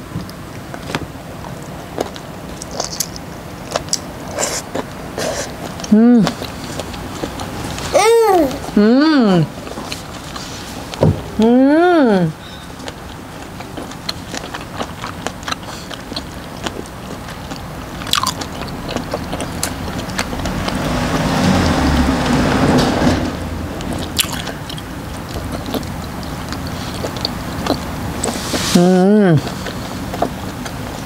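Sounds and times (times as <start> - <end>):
wet chewing mouth clicks: 12.8 - 22.4, 23.8 - 28.4, 29.4 - 31.0.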